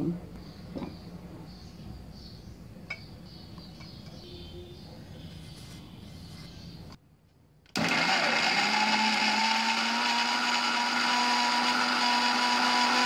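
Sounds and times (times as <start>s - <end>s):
mixer grinder motor whining: 7.8s - 13.0s.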